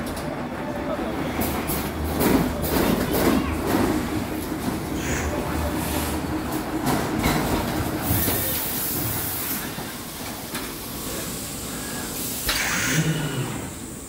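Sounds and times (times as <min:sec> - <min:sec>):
compressed air hisses: 0:11.0 - 0:13.0.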